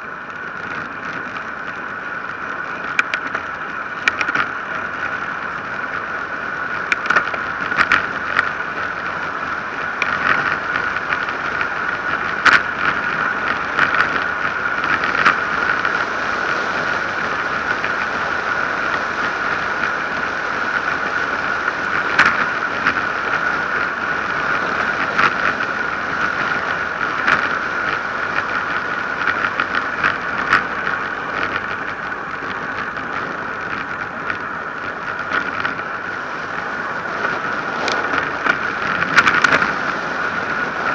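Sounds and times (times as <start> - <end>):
bike clicks and rattles: 0.0 - 40.9
wind and tyre noise: 0.0 - 40.9.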